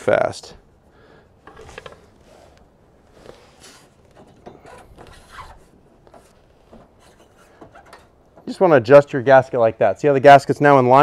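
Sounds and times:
light knocks and rubbing: 0:03.2 - 0:08.5.

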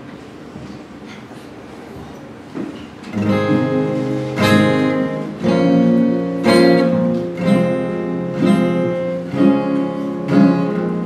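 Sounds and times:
acoustic guitars strumming chords: 0:03.1 - 0:11.0.

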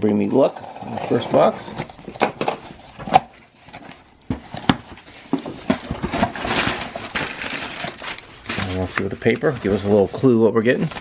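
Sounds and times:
cardboard box rustling: 0:00.6 - 0:11.0.

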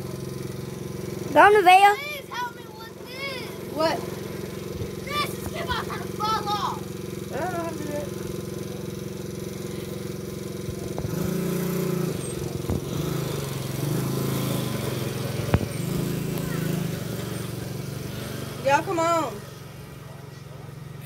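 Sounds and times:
small gas engine revving: 0:00.0 - 0:21.0.

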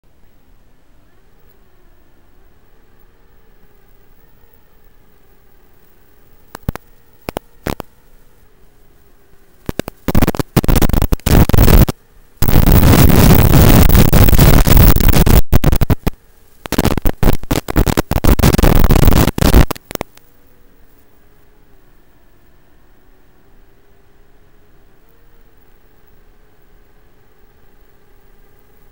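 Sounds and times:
faint hum with wavering tones: 0:00.1 - 0:28.9
radio static hiss bursts: 0:01.4 - 0:21.8.

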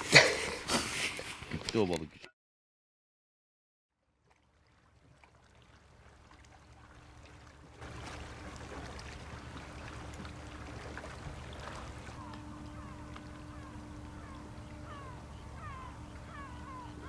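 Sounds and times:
small waves lapping on pebbles: 0:04.3 - 0:12.2
faint steady hum: 0:05.5 - 0:17.0.

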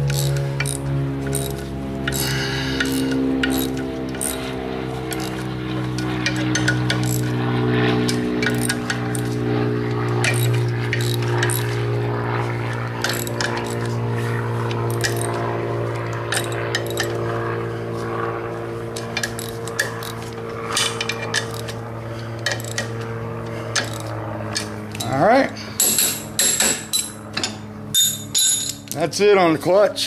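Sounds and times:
low hum of held tones: 0:00.0 - 0:30.0
socket wrench clinking on metal: 0:10.2 - 0:11.7, 0:14.9 - 0:15.4, 0:16.3 - 0:17.2, 0:19.0 - 0:21.8, 0:22.4 - 0:23.0, 0:23.7 - 0:25.1, 0:25.8 - 0:29.0.

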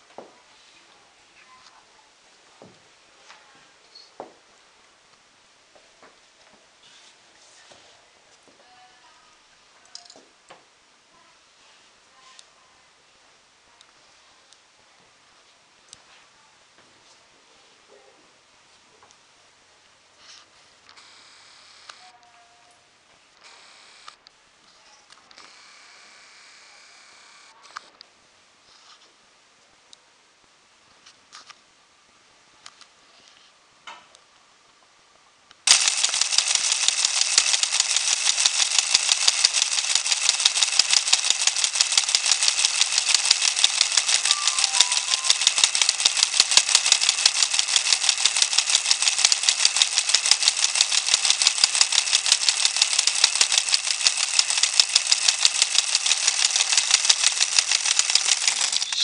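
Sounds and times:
electric motor gear rattle: 0:35.7 - 0:59.0.

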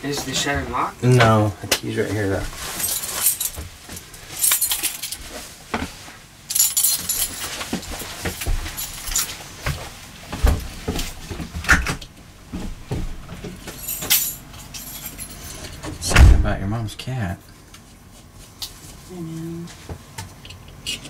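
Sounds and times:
keys jangling: 0:02.7 - 0:05.2, 0:06.5 - 0:09.4, 0:13.7 - 0:15.9.

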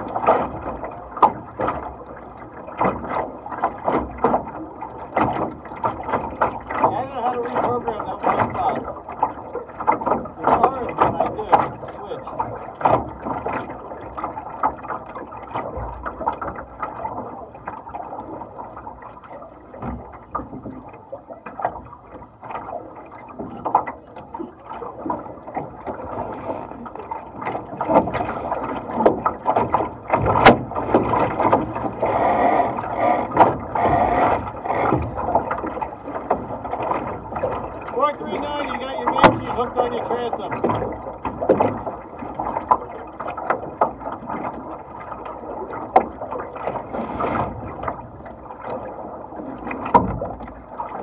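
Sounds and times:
water splashing against hull: 0:00.0 - 0:51.0.

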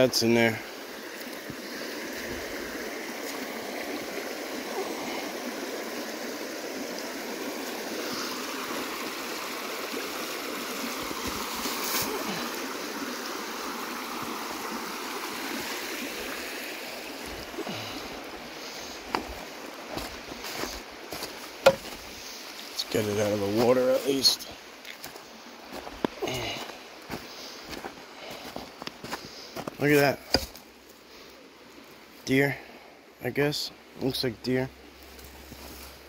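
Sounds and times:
stream running: 0:00.0 - 0:36.0.

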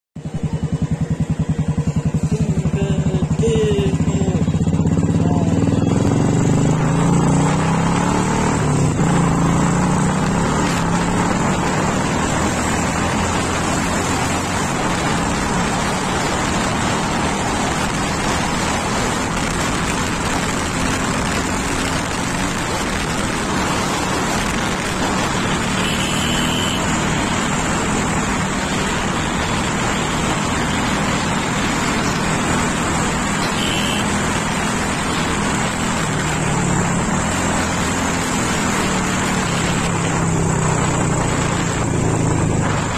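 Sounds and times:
motorcycle engine running: 0:00.2 - 0:42.9
wind rushing over microphone: 0:38.3 - 0:42.9.

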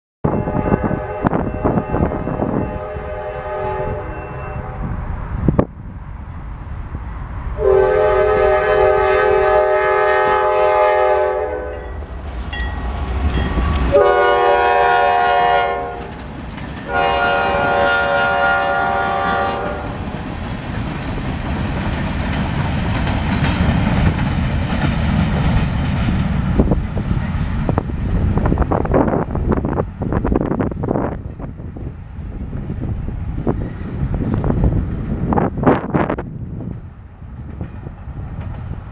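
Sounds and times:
locomotive horn blasts: 0:00.2 - 0:04.9, 0:07.6 - 0:12.0, 0:13.6 - 0:16.1, 0:16.9 - 0:20.0
freight cars rumbling and clattering: 0:11.9 - 0:14.0, 0:16.0 - 0:17.0, 0:19.8 - 0:38.9.

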